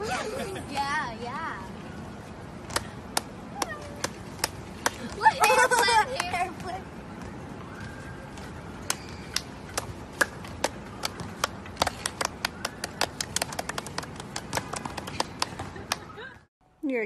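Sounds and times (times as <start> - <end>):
hands clapping: 2.7 - 6.4, 8.8 - 16.1.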